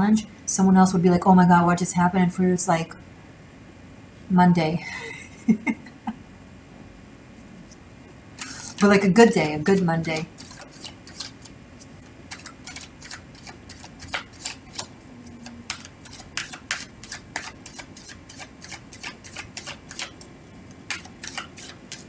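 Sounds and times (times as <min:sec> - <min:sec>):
cards being shuffled: 0:08.4 - 0:08.9, 0:09.6 - 0:14.9, 0:15.7 - 0:20.2, 0:20.9 - 0:22.0.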